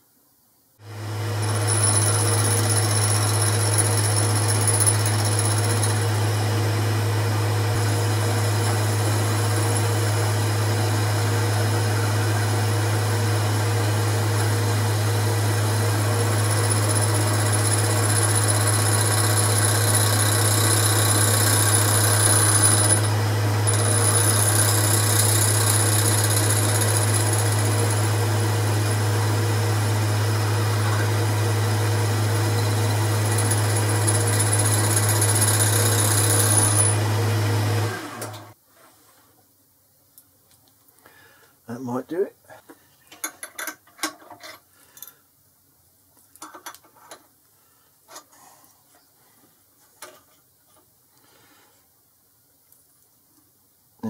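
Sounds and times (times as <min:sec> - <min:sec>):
high thin whine of metal cutting: 0:00.9 - 0:38.6
lathe humming: 0:00.9 - 0:38.6.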